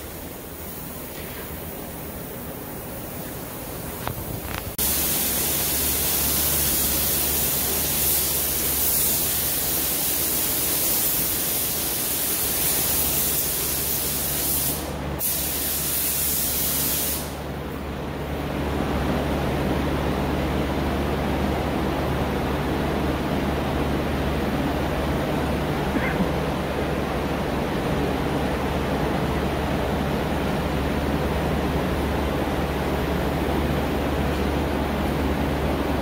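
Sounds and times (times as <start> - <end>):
steady low hum: 0.0 - 15.2, 17.2 - 36.0
air spray gun hissing: 4.8 - 17.4.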